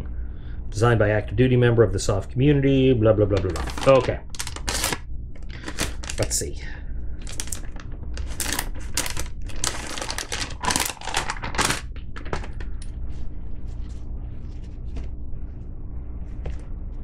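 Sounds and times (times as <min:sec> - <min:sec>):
packaging crinkling: 0:03.3 - 0:06.5, 0:07.2 - 0:13.0.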